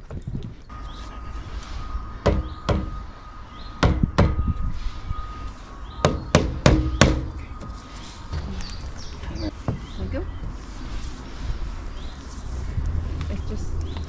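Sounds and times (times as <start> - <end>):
sharp knocks on plastic pipe: 6.0 - 7.3.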